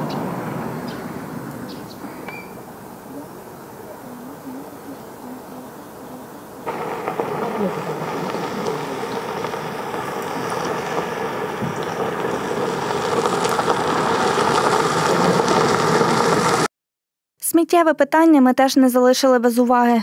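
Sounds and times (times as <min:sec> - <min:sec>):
tyres crunching on gravel: 0:06.6 - 0:16.7
car engine running: 0:06.7 - 0:16.7.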